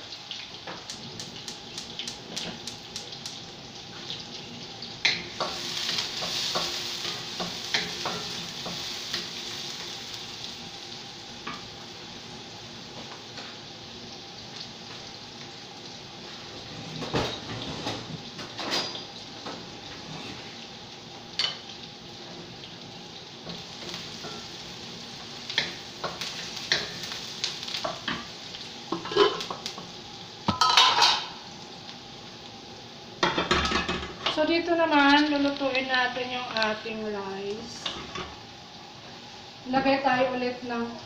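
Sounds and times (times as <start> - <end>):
onion and garlic sizzling in oil: 0.0 - 41.0
pan and utensil clatter: 16.8 - 19.2, 23.5 - 24.5, 28.9 - 29.8, 30.5 - 31.4, 33.2 - 34.4.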